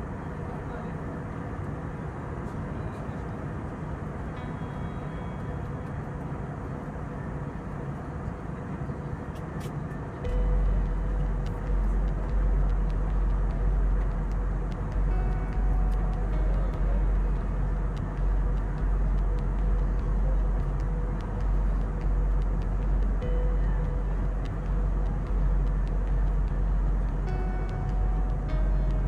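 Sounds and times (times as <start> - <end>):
airliner cabin noise: 0.0 - 29.0
music with pulsing bass: 10.2 - 29.0.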